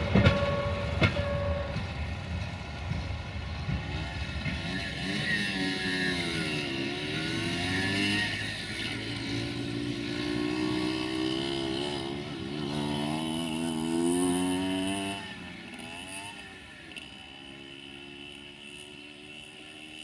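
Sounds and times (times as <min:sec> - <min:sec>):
diesel engine revving: 0:03.6 - 0:18.6.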